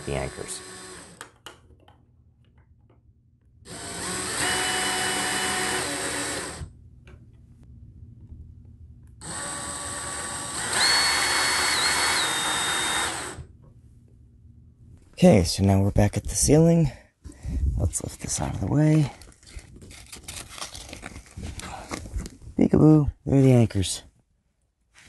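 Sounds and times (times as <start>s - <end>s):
cordless drill whining: 0.0s - 1.2s, 3.7s - 6.7s, 9.2s - 13.5s.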